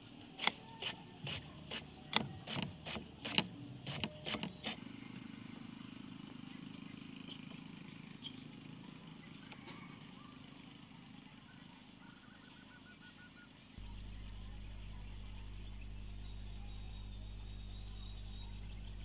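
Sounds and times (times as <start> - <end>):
knife slicing cucumber: 0.4 - 4.8
bird chirps: 7.0 - 19.0
loud low hum: 13.8 - 19.0
low steady drone: 13.8 - 19.0.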